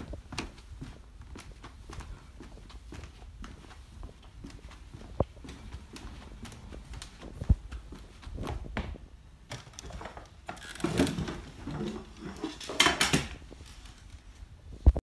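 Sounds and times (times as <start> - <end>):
footsteps on hardwood floor: 0.0 - 9.1.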